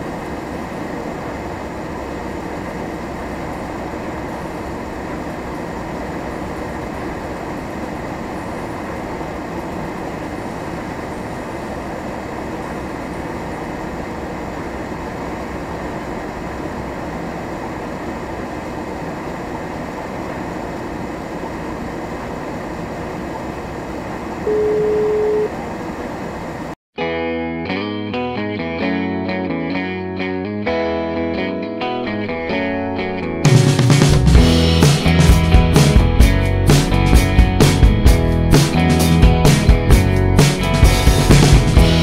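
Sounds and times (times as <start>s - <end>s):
vehicle engine and tyre noise: 0.0s - 26.8s
steady beep: 24.4s - 25.6s.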